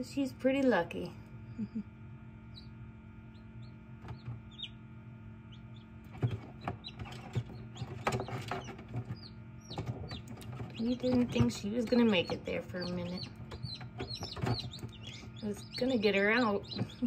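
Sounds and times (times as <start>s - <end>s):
incubator humming: 0.0s - 17.0s
chicks peeping: 2.4s - 17.0s.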